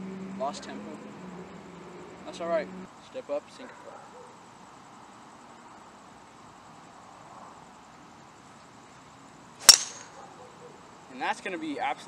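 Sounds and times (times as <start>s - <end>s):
faint steady hiss: 0.0s - 12.0s
insect trill: 0.0s - 12.0s.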